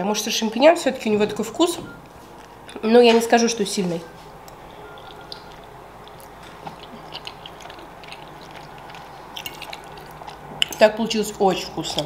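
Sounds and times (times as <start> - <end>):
wet chewing mouth sounds: 4.2 - 12.0.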